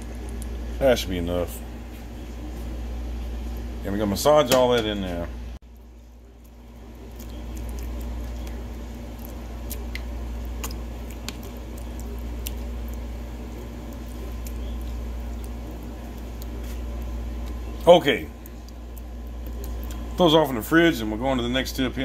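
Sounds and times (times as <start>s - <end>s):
steady low hum: 0.0s - 22.0s
wet squishing of meat: 5.7s - 20.2s.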